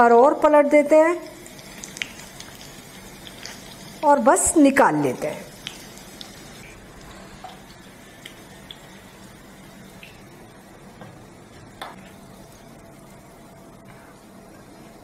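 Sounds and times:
oil sizzling in a frying pan: 0:01.2 - 0:10.8.

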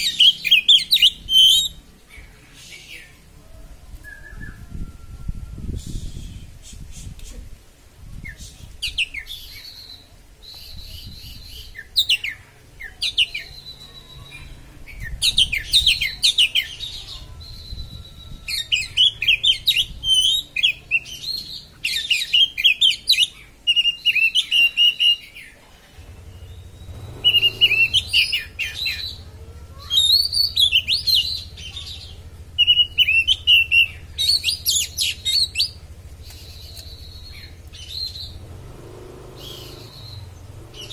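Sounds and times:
songbird whistling and chattering: 0:00.0 - 0:03.2, 0:04.0 - 0:07.3, 0:08.2 - 0:25.6, 0:26.2 - 0:38.5.

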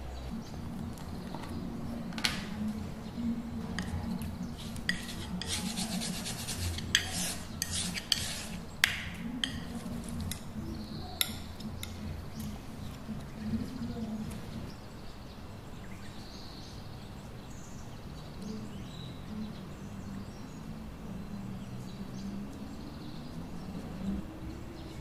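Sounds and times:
palette knife scraping paint: 0:03.8 - 0:10.3.

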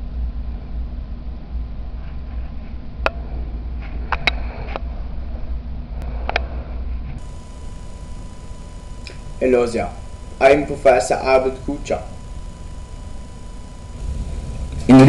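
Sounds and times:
low hum: 0:00.6 - 0:15.0
sharp clicks: 0:07.2 - 0:14.9.

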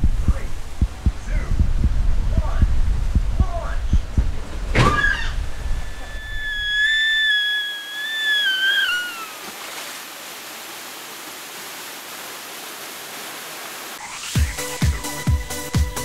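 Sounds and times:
water rushing down flume: 0:00.0 - 0:14.4
woman screaming: 0:06.0 - 0:09.4.

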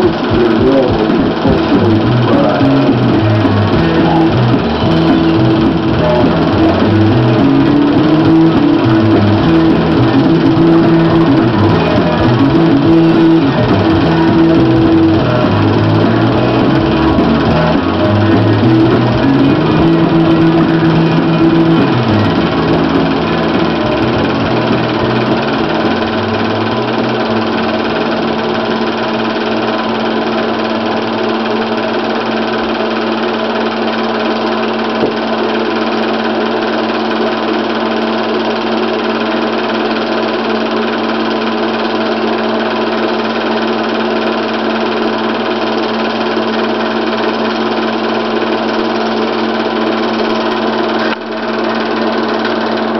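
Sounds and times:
background music: 0:00.0 - 0:28.5
film projector clatter: 0:00.0 - 0:52.9
motor hum: 0:00.0 - 0:52.9.

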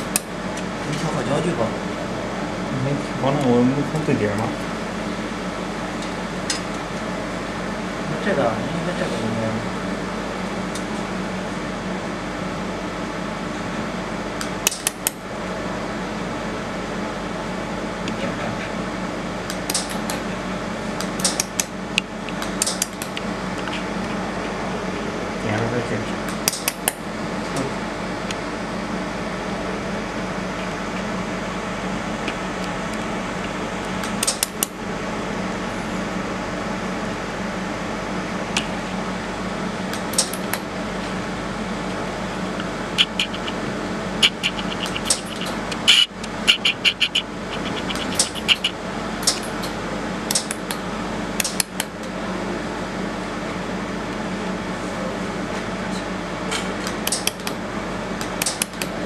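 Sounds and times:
welding pulse clicks: 0:00.0 - 0:00.7, 0:14.4 - 0:15.2, 0:19.4 - 0:20.2, 0:21.0 - 0:23.3, 0:26.2 - 0:27.0, 0:32.2 - 0:34.8, 0:39.9 - 0:40.7, 0:42.6 - 0:52.0, 0:56.8 - 0:57.6, 0:58.2 - 0:59.0
cooling system humming: 0:00.0 - 0:59.0.

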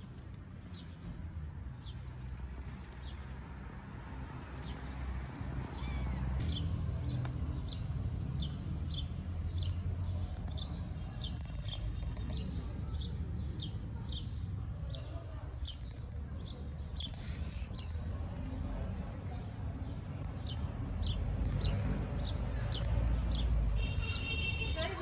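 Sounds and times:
kittens mewing: 0:05.6 - 0:06.4.

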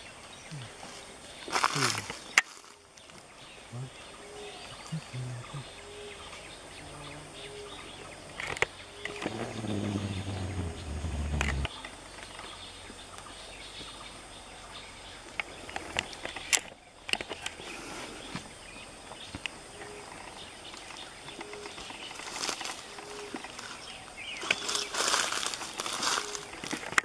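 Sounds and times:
faint short low calls: 0:09.2 - 0:11.7
steady hiss: 0:09.2 - 0:11.7
low rumble: 0:09.3 - 0:11.7.

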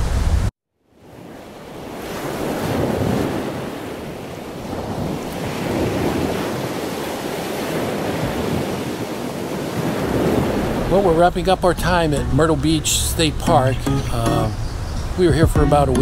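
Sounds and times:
ocean surf breaking on beach: 0:00.0 - 0:13.5.

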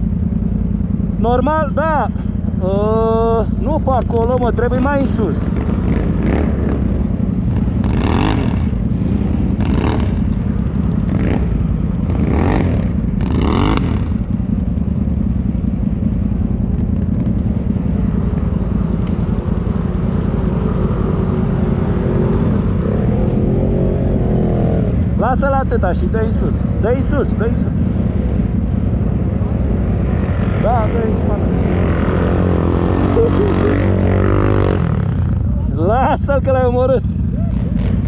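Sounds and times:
atv engine revving: 0:00.0 - 0:38.0.

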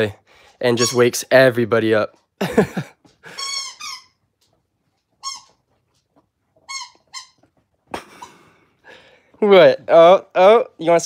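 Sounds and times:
dog toy squeaking: 0:00.8 - 0:01.2, 0:03.3 - 0:04.2, 0:05.2 - 0:05.7, 0:06.6 - 0:07.5.

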